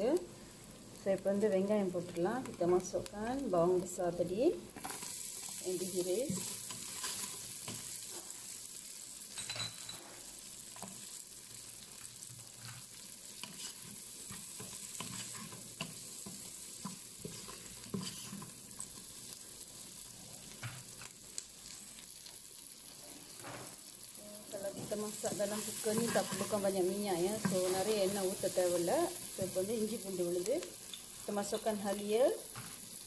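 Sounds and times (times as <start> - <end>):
onions sizzling in hot oil: 0.0 - 33.0
wooden spatula scraping pot: 13.4 - 16.0, 16.8 - 18.6, 24.8 - 28.2.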